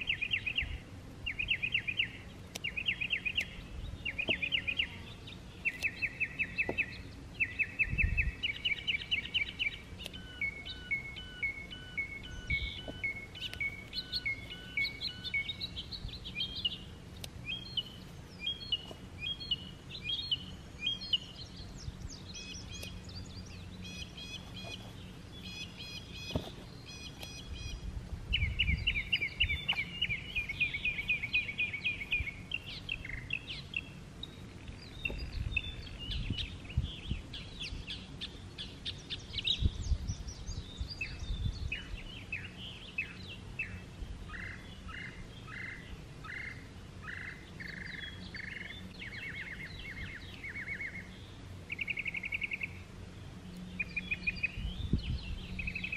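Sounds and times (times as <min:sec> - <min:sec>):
songbirds singing: 0:00.0 - 0:55.9.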